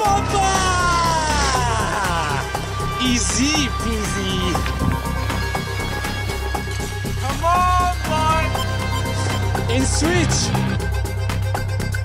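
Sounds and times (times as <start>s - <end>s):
man yelling: 0.0s - 4.6s, 7.3s - 8.6s
background music with steady beat: 0.0s - 12.0s.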